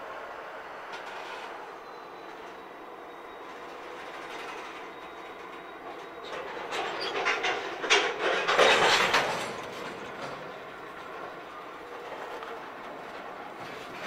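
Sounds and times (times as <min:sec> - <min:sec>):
freight train rumble: 0:00.0 - 0:14.0
wheels clacking over rail joints: 0:00.8 - 0:14.0.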